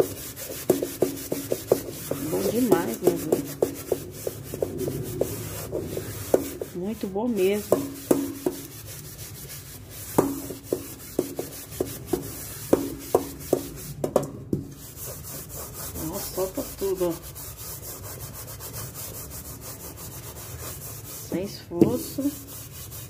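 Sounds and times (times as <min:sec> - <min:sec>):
sponge scrubbing a metal pot: 0:00.0 - 0:23.0.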